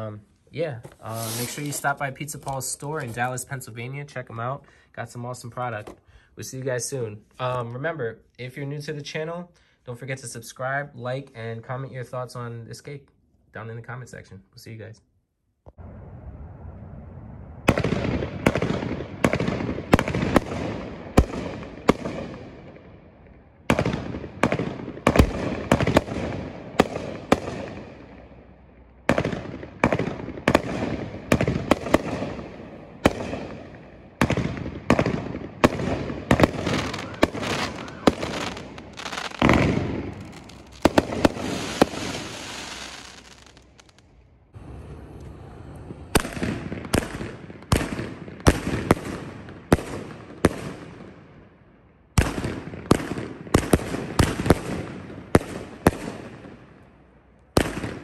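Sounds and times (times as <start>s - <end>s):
firework launch reports: 0.8s - 7.6s, 34.2s - 44.0s, 44.6s - 50.6s
rapid firework crackling: 1.0s - 2.0s, 34.2s - 44.0s
firework aerial bursts: 1.0s - 2.3s, 29.1s - 44.0s, 44.6s - 50.8s.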